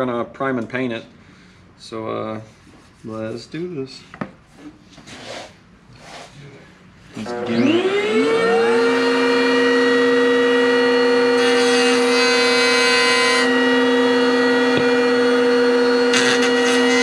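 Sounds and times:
electric router whining: 0:07.1 - 0:17.0.

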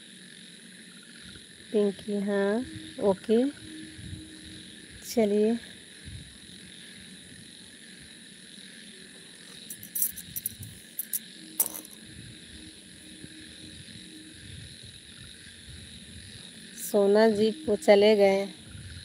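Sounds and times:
crickets chirping: 0:00.0 - 0:19.0
sharp clicks: 0:09.6 - 0:12.0.

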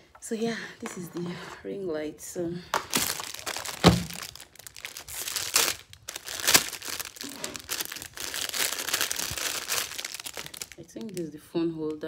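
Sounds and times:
plastic bag crinkling: 0:02.7 - 0:12.0.

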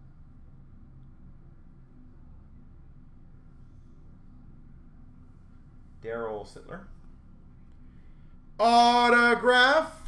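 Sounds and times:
faint low hum: 0:00.0 - 0:10.0
man speaking: 0:08.6 - 0:10.0.

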